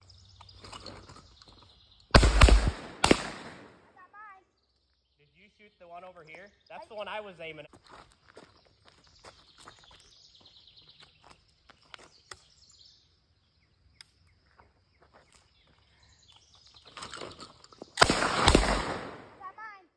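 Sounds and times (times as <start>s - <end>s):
faint bird chirps: 4.0s - 18.0s.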